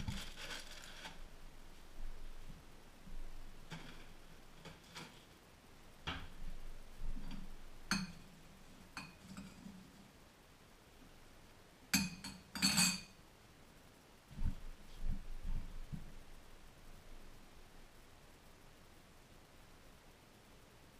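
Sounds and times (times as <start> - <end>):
spoon clinking ceramic bowl: 7.9 - 8.3, 8.9 - 9.6, 12.0 - 13.2
soft low thumps: 14.3 - 16.2.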